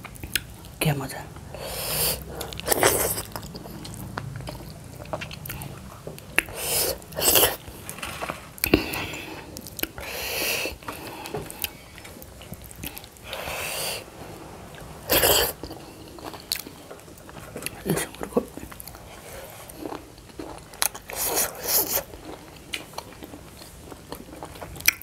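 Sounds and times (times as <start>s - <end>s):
people chewing food: 0.0s - 25.0s
breathy rushes of noise: 12.8s - 16.5s.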